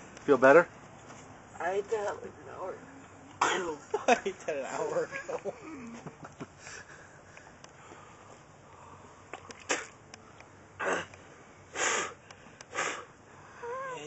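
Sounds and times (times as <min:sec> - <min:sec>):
man coughing harshly: 0:03.4 - 0:03.8.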